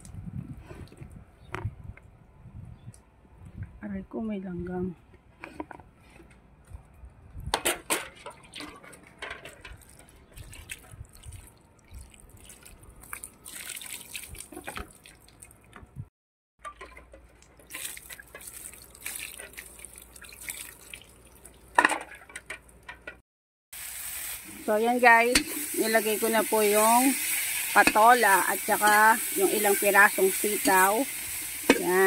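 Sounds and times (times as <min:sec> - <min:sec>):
water splashing and dripping: 0:08.0 - 0:16.1, 0:16.7 - 0:22.9.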